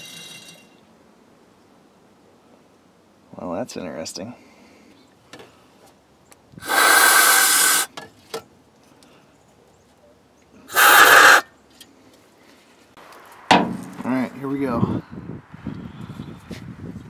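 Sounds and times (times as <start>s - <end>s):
aerosol can spraying: 6.6s - 7.9s, 10.7s - 11.4s.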